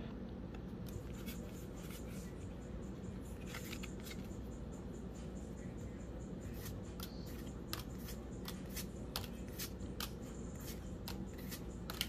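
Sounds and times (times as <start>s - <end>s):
steady low hum: 0.0s - 12.0s
trading cards snapping: 11.0s - 12.0s.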